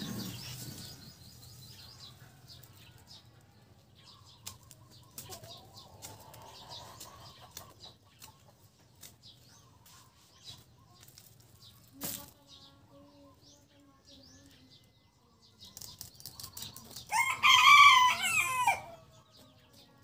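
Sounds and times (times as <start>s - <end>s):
leaves rustling: 11.0s - 12.4s.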